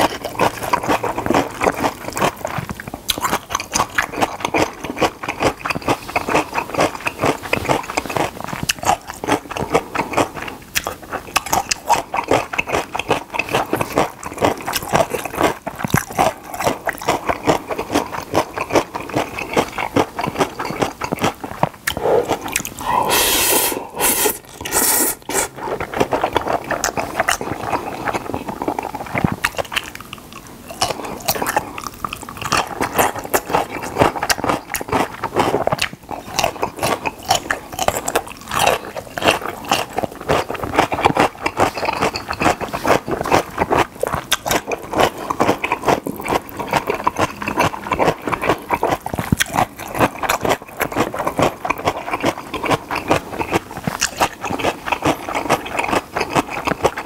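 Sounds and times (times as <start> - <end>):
wet chewing and smacking: 0.0 - 57.0
noodle slurp: 21.9 - 29.4.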